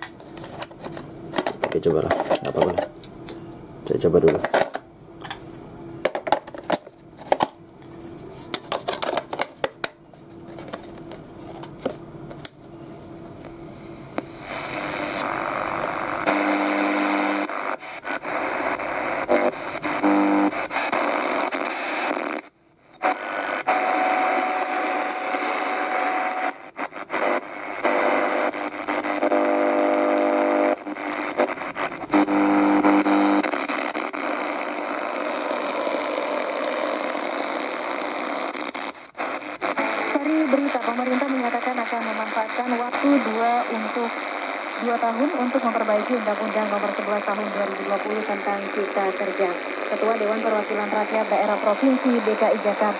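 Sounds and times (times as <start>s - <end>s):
radio static hiss: 0.0s - 12.1s, 13.0s - 52.9s
short steady radio tones: 13.4s - 52.9s
snatches of radio stations: 14.0s - 52.9s.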